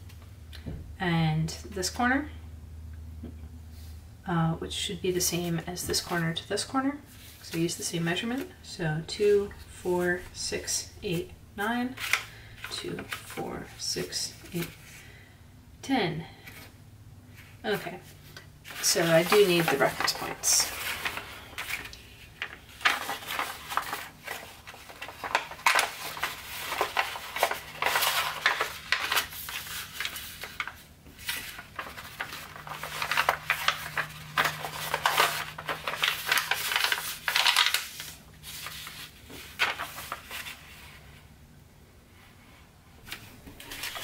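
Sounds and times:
paper rustling and crinkling: 11.9 - 13.4, 17.4 - 41.2, 43.0 - 44.0.

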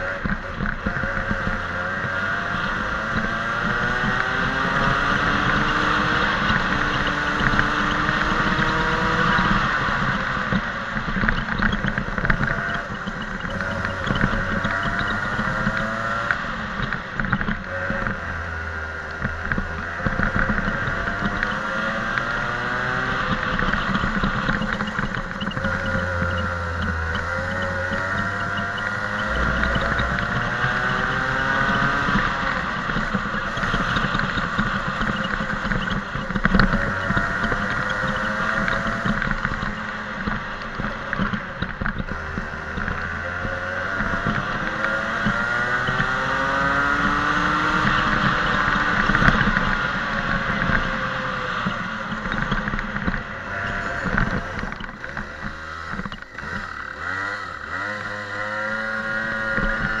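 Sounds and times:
go-kart engine revving: 0.0 - 60.0.

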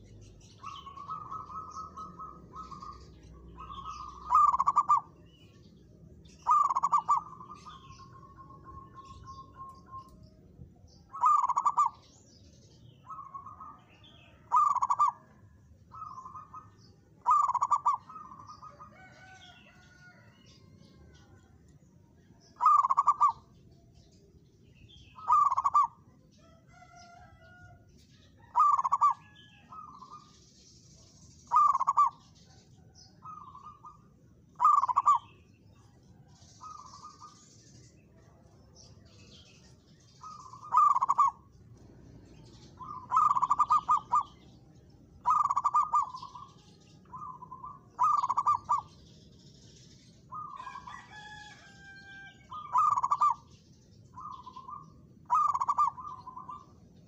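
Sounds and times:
dove cooing: 0.0 - 5.5, 6.3 - 10.2, 11.1 - 12.2, 13.0 - 21.4, 22.5 - 23.6, 25.1 - 26.0, 28.4 - 30.2, 31.4 - 35.4, 40.2 - 44.5, 45.2 - 49.0, 50.3 - 56.8
small birds chirping: 0.0 - 57.0.

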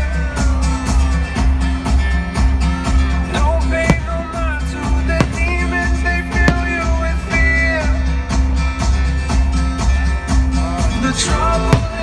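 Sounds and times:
sharp cracks: 3.7 - 7.4.

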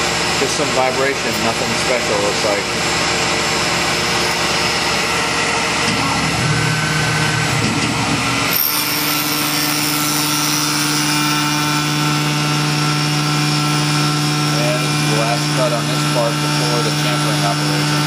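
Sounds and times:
steady low hum: 0.0 - 9.8
mill machining metal: 0.0 - 18.0.

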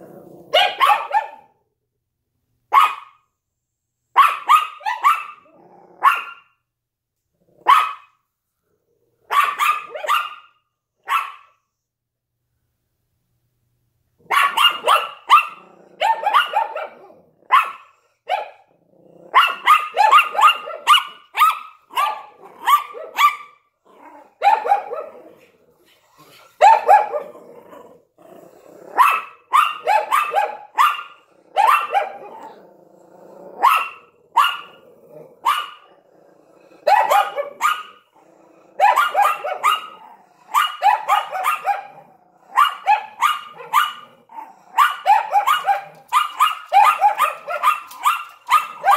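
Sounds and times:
dog growling: 0.0 - 0.6, 5.4 - 6.1, 15.5 - 19.6, 22.3 - 23.2, 23.8 - 29.3, 31.2 - 39.0, 39.9 - 40.5, 41.8 - 42.6, 43.5 - 44.8
small dogs barking: 0.0 - 1.6, 2.7 - 3.2, 4.1 - 6.6, 7.6 - 8.2, 9.2 - 11.6, 14.2 - 32.7, 33.4 - 48.9.

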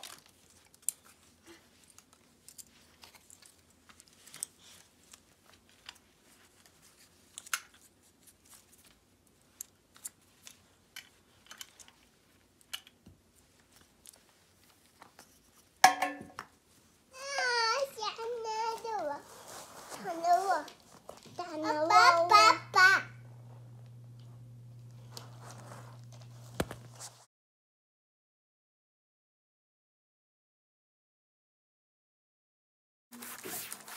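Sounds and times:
small objects clicking and snipping: 0.0 - 6.0, 6.6 - 14.2.

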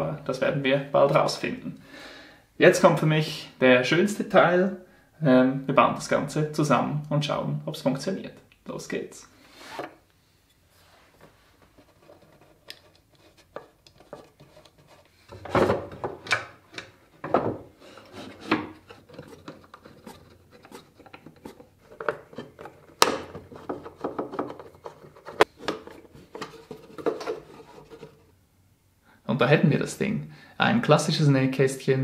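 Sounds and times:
wooden parts knocking together: 15.4 - 17.7, 18.4 - 27.6.

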